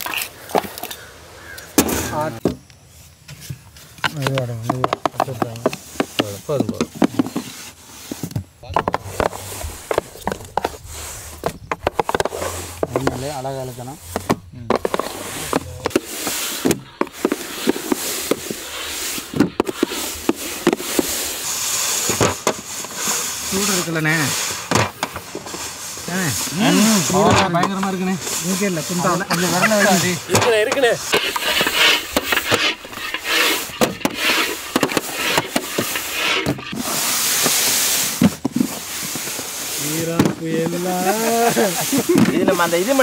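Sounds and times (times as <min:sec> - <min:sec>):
steady hiss: 0:00.3 - 0:43.0
dough rubbing swishes: 0:25.4 - 0:38.2.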